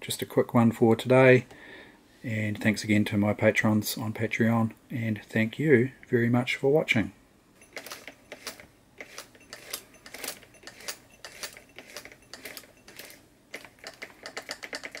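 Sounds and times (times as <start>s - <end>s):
sewing machine clicking: 7.6s - 15.0s.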